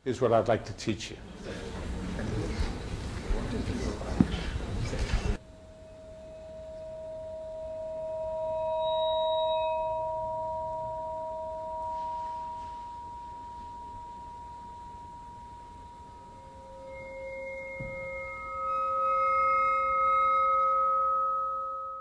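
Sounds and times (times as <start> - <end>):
bowed vibraphone ringing tones: 5.4 - 22.0.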